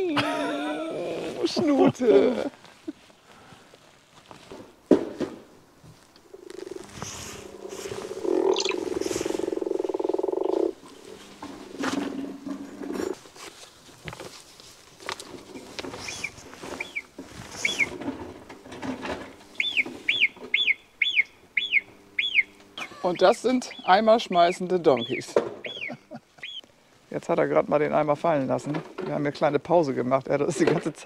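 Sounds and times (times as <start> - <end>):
frog croaking through loudspeaker: 6.2 - 10.8, 19.6 - 25.9
marmot high whistles: 17.6 - 17.9, 19.6 - 26.6.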